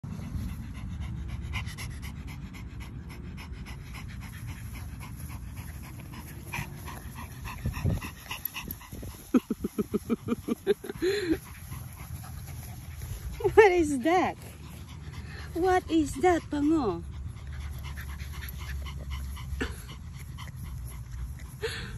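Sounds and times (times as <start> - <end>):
dog panting: 0.0 - 21.9
steady low rumble: 0.0 - 21.9.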